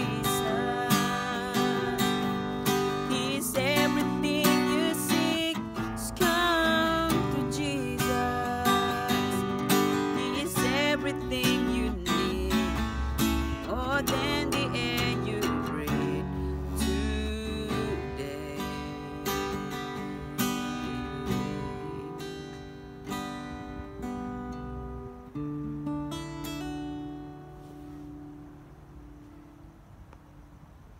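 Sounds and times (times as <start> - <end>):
man singing: 0.0 - 12.9, 13.5 - 20.0, 20.8 - 22.6
acoustic guitar strumming chords: 0.0 - 29.8.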